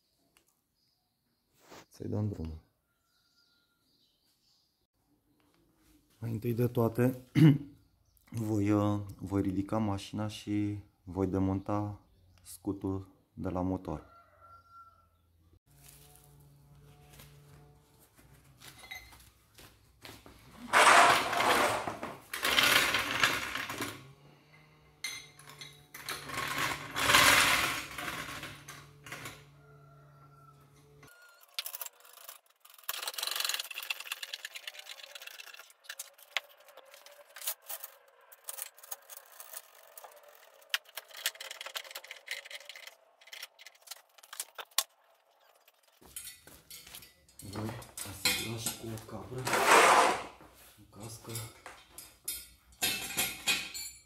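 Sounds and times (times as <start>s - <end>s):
trolley jack scraping rattles: 20.7s - 24.0s, 25.4s - 29.4s, 49.4s - 50.3s
jack clicking and rattling: 25.4s - 29.4s, 31.4s - 48.6s.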